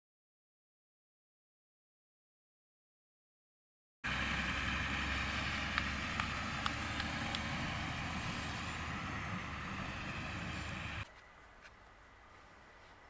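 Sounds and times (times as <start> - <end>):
diesel engine running: 4.0 - 11.0.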